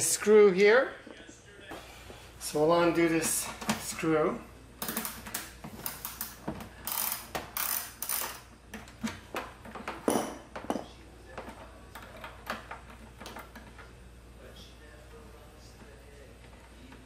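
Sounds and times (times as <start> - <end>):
socket ratchet clicking: 4.8 - 8.5.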